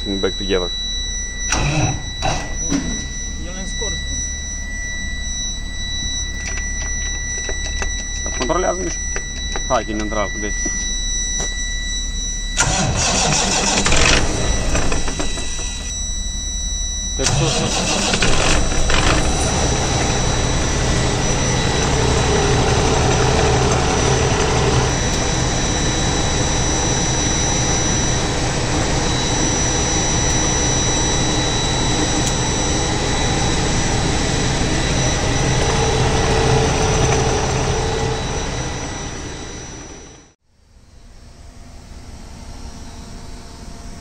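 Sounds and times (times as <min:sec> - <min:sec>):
thin high whine: 0:00.0 - 0:44.0
diesel truck engine running: 0:12.6 - 0:40.4.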